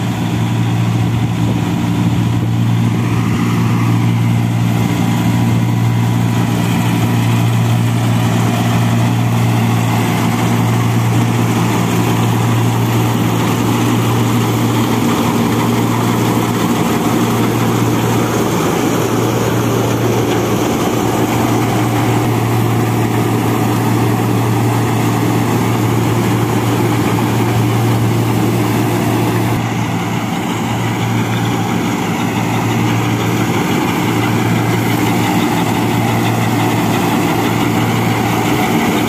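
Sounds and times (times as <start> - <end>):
straw rushing through chute: 0.0 - 39.0
tractor diesel engine drone: 0.0 - 39.0.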